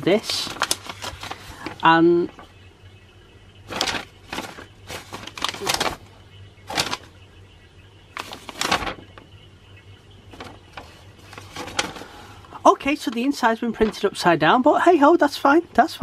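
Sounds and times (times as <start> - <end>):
paper rustling: 0.0 - 2.5, 3.7 - 6.1, 6.7 - 7.1, 8.2 - 9.2, 10.3 - 14.1.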